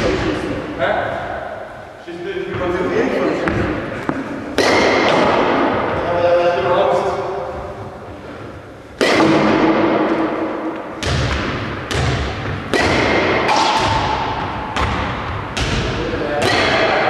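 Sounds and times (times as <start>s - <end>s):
balls striking walls and floor: 2.5s - 17.0s
bat hitting balls: 4.5s - 6.0s, 8.9s - 17.0s.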